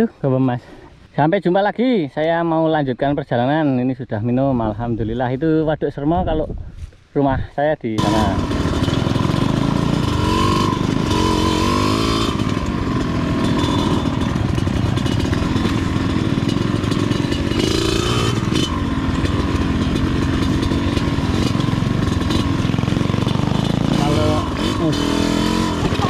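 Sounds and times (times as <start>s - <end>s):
motorcycle engine revving: 8.0s - 26.0s.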